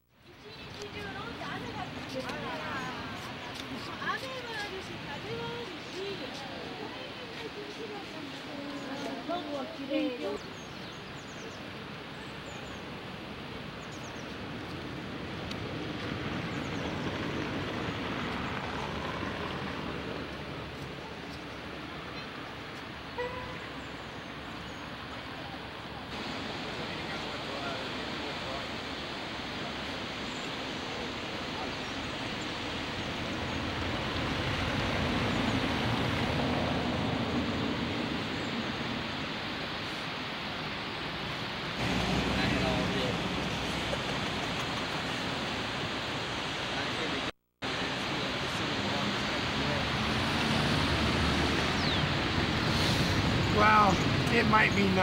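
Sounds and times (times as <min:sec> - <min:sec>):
steady rushing noise: 0:23.7 - 0:55.0.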